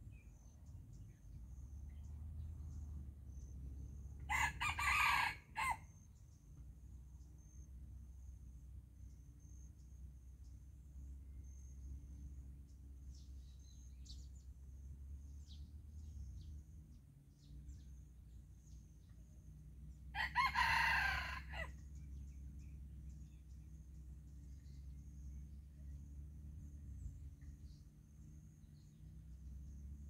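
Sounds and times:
rooster crowing: 0:04.3 - 0:05.9, 0:20.1 - 0:21.8.

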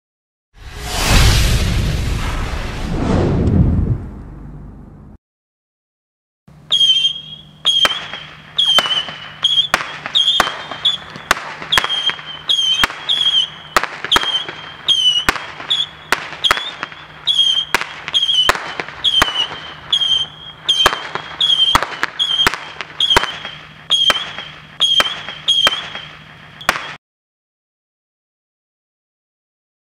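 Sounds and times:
missile launch reports: 0:00.7 - 0:04.6
missiles whistling: 0:06.6 - 0:27.0.

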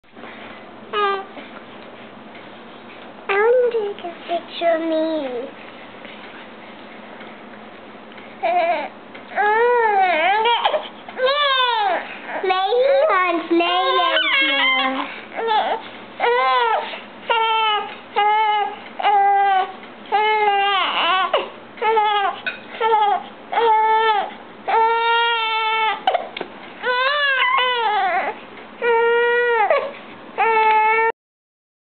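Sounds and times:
baby crying: 0:08.4 - 0:13.1, 0:13.8 - 0:31.1.

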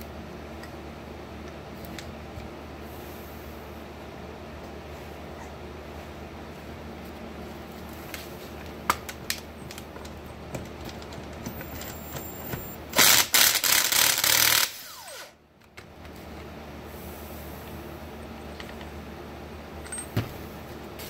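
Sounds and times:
motor winding down whine: 0:11.5 - 0:15.4.

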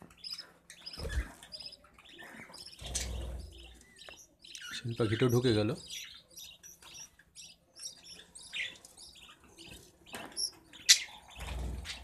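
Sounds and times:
budgerigar chicks chirping: 0:00.0 - 0:12.0.

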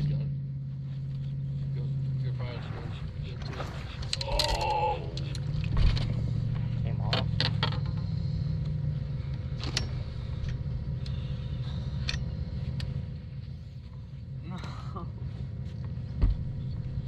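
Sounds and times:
boat motor humming: 0:00.0 - 0:17.0
thump: 0:16.2 - 0:16.6.

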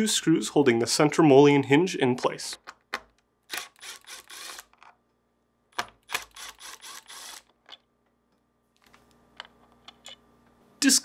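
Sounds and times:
cordless driver motor: 0:03.5 - 0:04.8, 0:06.1 - 0:07.5.

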